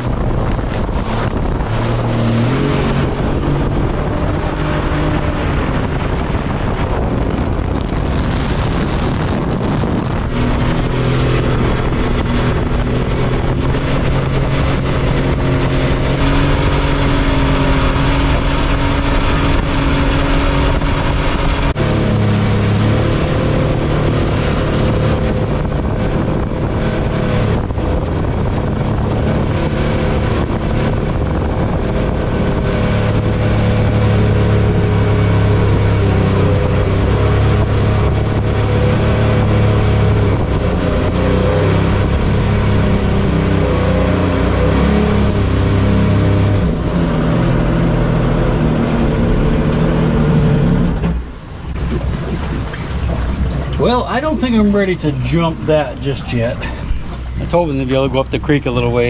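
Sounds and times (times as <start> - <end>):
jet boat engine running: 0.0 - 59.0
water rushing and spraying: 50.9 - 59.0.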